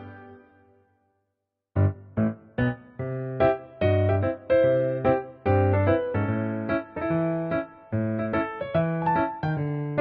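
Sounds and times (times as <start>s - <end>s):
keyboard tune with chords: 0.0s - 0.9s.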